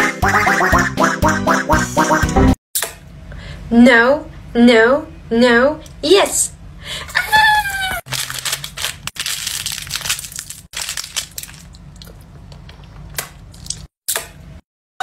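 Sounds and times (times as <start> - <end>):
crinkling and crunching in hands: 7.7 - 13.9.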